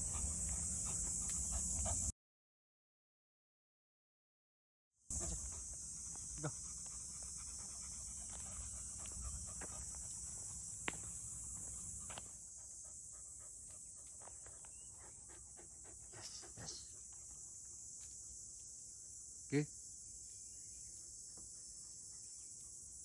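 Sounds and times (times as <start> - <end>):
high-pitched insect drone: 0.0 - 2.1, 5.1 - 23.0
puppies panting: 0.0 - 2.1, 5.1 - 18.4.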